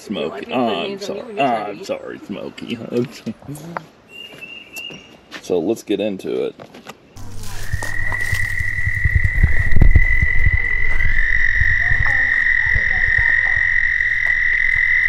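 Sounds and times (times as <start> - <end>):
trilling animal chorus: 7.3 - 15.0
low knocks and rumbles: 7.9 - 15.0.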